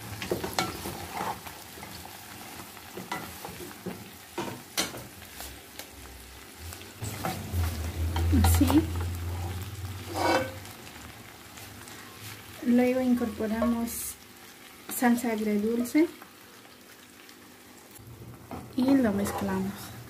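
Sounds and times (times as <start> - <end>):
light sizzle: 0.0 - 20.0
spatula scraping pot: 0.5 - 1.5, 9.3 - 10.6, 18.8 - 19.7.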